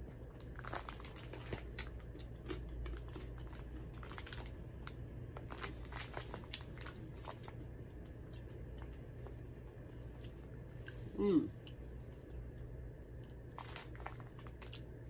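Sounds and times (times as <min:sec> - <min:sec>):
snack bag rustling: 0:00.0 - 0:07.7, 0:13.4 - 0:15.0
pretzel crunching: 0:00.3 - 0:07.6, 0:13.5 - 0:14.9.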